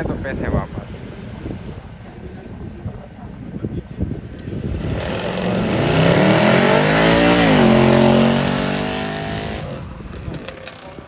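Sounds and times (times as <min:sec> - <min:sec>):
car engine revving hard: 0:04.6 - 0:09.9.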